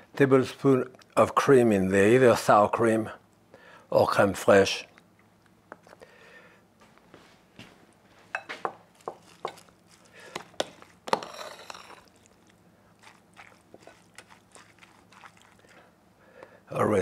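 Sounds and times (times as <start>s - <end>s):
wet scraping of stirred salad: 8.3s - 15.9s.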